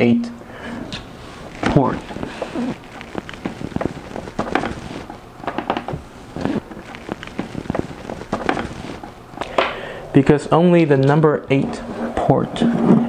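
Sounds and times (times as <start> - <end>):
plastic film crackling: 1.3 - 9.5
clicks and taps: 5.4 - 6.0.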